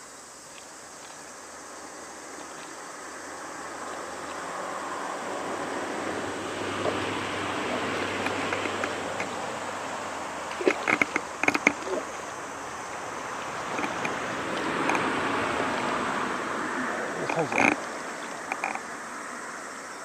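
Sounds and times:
water swishing and lapping: 2.3s - 19.5s
sharp clicks and knocks: 8.0s - 9.4s, 10.5s - 12.1s, 13.7s - 15.1s, 17.3s - 18.8s.

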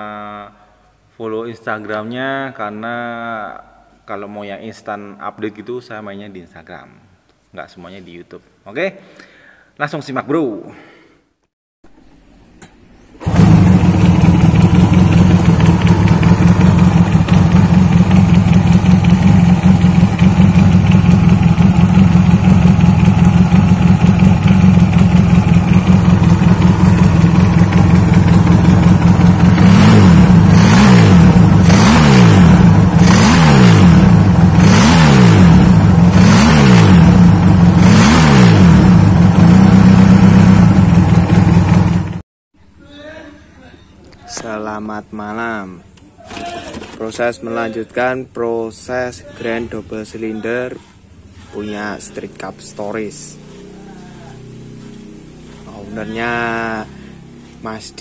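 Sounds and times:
motorcycle throttle blips: 12.6s - 42.2s
motorcycle engine idling: 13.2s - 33.3s, 38.8s - 42.2s, 52.1s - 57.9s.

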